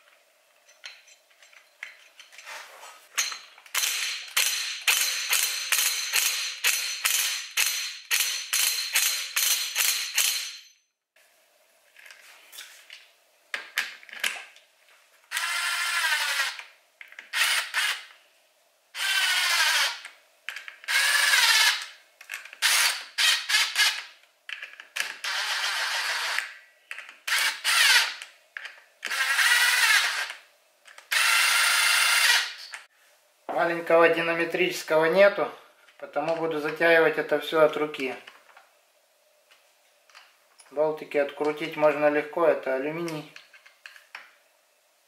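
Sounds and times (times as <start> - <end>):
impact driver bursts: 17.3 - 18.1, 22.6 - 24.1, 27.3 - 28.2, 31.1 - 32.7.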